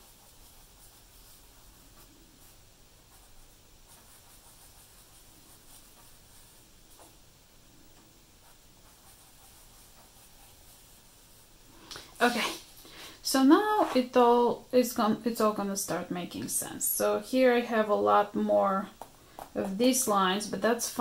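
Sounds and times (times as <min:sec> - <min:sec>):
pencil scratching on paper: 0:00.0 - 0:07.1, 0:08.4 - 0:11.4.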